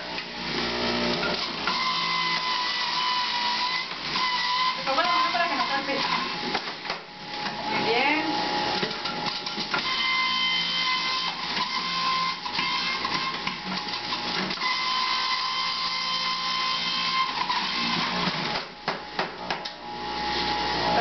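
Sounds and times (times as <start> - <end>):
juicer motor whining: 0.0 - 21.0.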